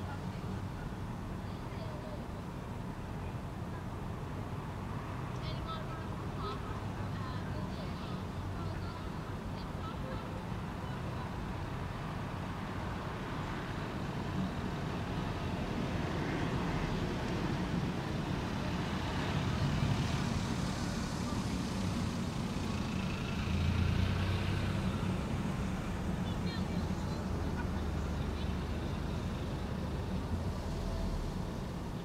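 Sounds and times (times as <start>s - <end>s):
vehicle passing: 15.6s - 32.0s.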